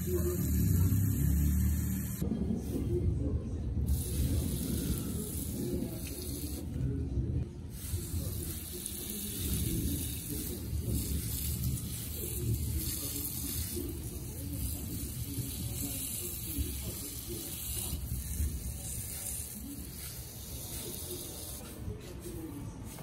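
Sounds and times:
water spraying from hose: 0:07.8 - 0:21.6.

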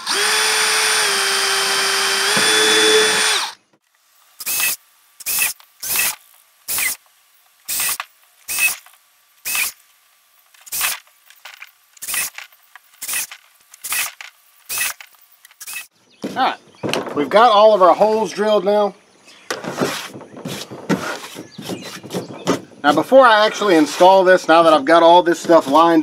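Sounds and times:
cordless drill drilling plastic: 0:00.0 - 0:03.7, 0:04.4 - 0:07.0, 0:07.7 - 0:09.8, 0:10.6 - 0:15.9.

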